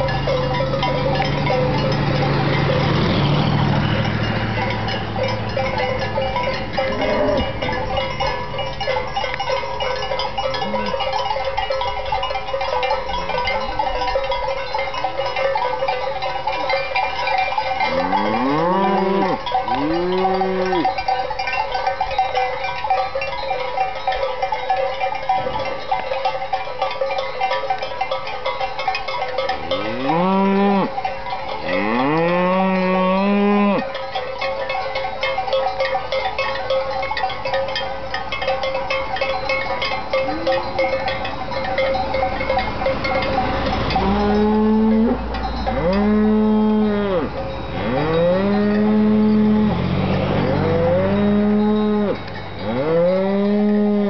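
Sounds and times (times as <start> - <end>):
cows mooing: 0.0 - 9.4, 10.2 - 11.2, 17.8 - 21.1, 29.4 - 31.0, 31.6 - 34.0, 39.8 - 41.3, 42.9 - 54.0
cowbells ringing and clanking: 0.0 - 54.0.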